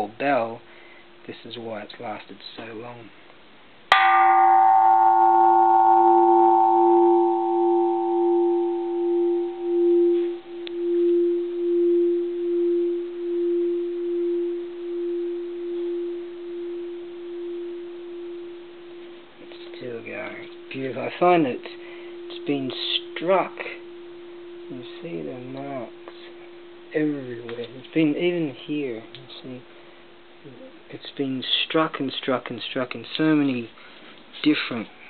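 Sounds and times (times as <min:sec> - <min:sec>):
temple bell ringing: 0:03.9 - 0:30.4.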